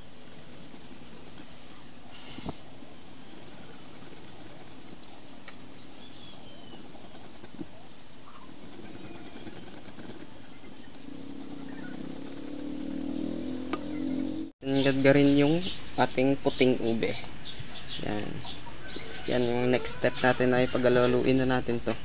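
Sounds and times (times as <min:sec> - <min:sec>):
low hum: 0:00.0 - 0:14.5.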